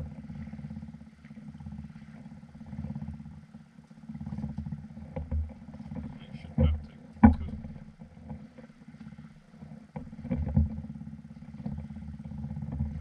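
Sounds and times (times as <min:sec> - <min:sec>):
low motor hum: 0:00.0 - 0:13.0.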